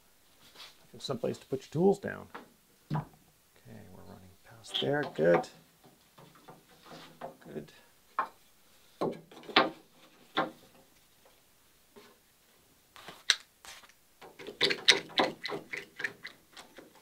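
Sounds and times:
wooden knocks: 0:04.8 - 0:07.6, 0:09.0 - 0:10.9.

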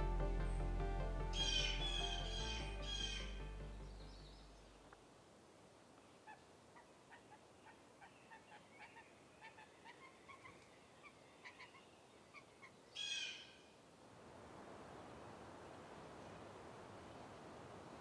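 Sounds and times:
harsh bird call: 0:01.4 - 0:03.4.

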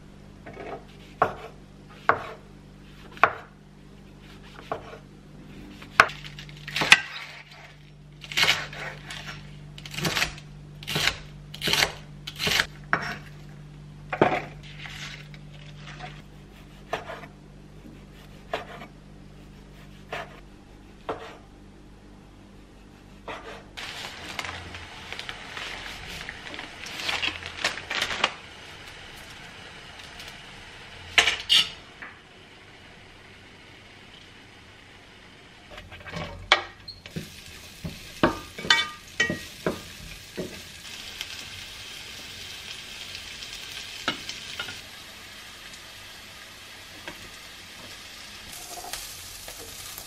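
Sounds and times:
knife chopping on wooden board: 0:00.5 - 0:02.4, 0:04.6 - 0:05.0.

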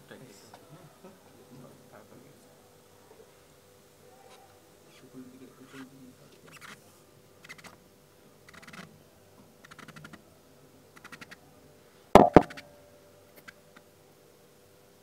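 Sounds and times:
sharp knocks: 0:12.2 - 0:12.7.

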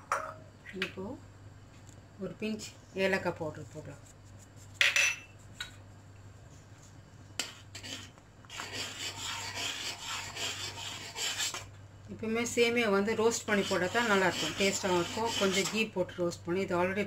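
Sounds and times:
metal spoon scraping a pot: 0:07.4 - 0:11.6, 0:13.3 - 0:15.9.

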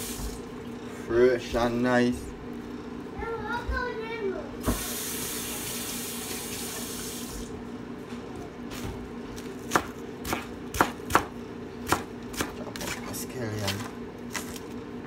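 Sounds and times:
kitchen tap running: 0:00.0 - 0:00.6, 0:04.6 - 0:07.5
knife chopping on plastic board: 0:09.4 - 0:14.6.

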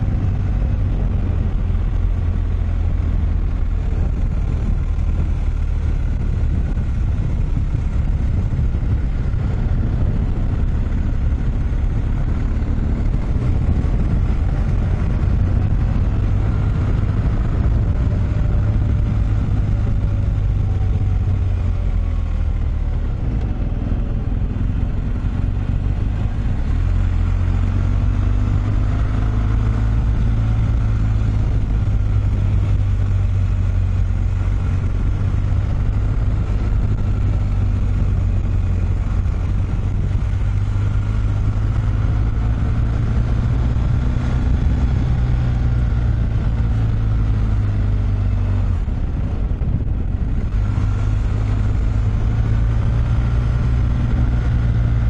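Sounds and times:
vehicle engine humming: 0:00.0 - 0:55.0.

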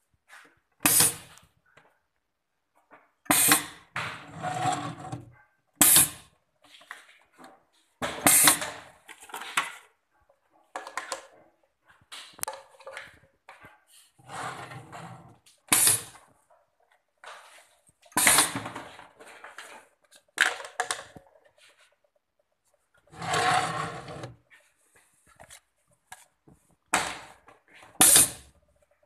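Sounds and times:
pneumatic jaws clacking: 0:15.7 - 0:16.1, 0:28.0 - 0:28.5
compressed air hissing: 0:28.0 - 0:28.4.

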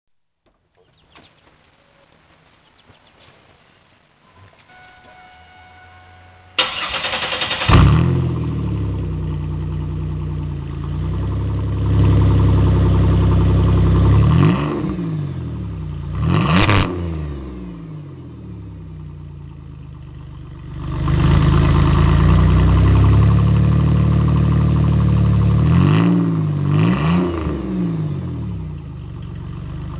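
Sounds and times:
loud car engine idling: 0:06.5 - 0:14.4, 0:18.8 - 0:25.8, 0:28.2 - 0:29.9
car engine starting and revving: 0:06.6 - 0:29.9.

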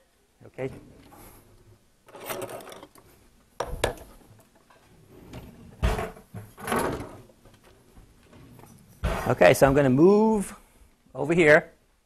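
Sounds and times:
heavy thump: 0:09.0 - 0:10.0.

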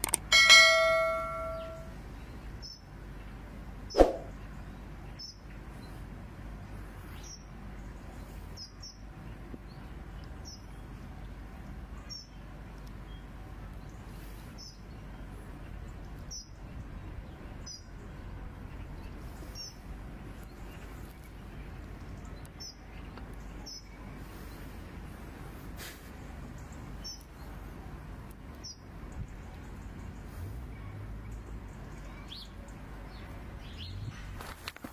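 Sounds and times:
bird chirping: 0:00.5 - 0:02.9, 0:26.6 - 0:27.5, 0:31.3 - 0:34.3.

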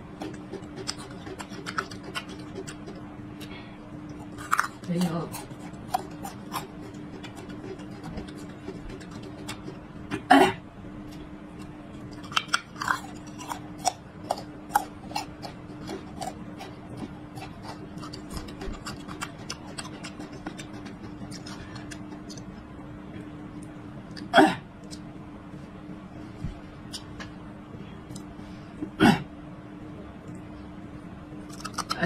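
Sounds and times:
crunchy chewing of garlic: 0:00.0 - 0:10.3, 0:11.1 - 0:22.7, 0:31.4 - 0:32.0
faint steady hum: 0:00.0 - 0:32.0.

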